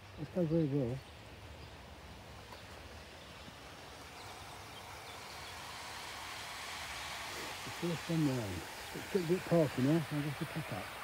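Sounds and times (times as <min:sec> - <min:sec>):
model train motor whirring: 0:03.3 - 0:11.0.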